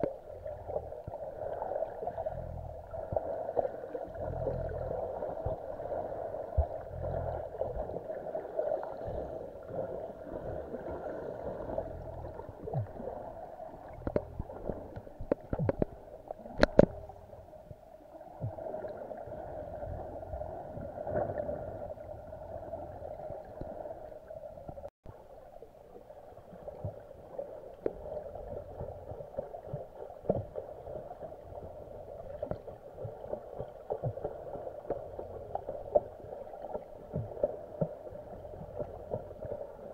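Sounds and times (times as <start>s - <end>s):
muffled underwater water movement: 0.0s - 39.9s
sharp clicks and knocks: 14.0s - 16.0s, 16.6s - 17.0s.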